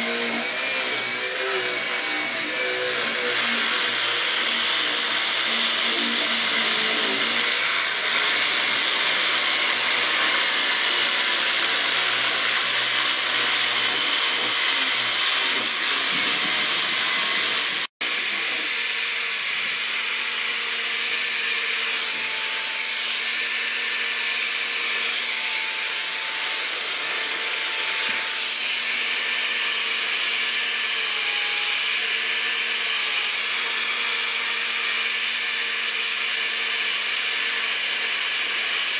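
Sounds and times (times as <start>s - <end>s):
angle grinder sanding wood: 0.0s - 38.9s
jigsaw cutting wood: 0.0s - 38.9s.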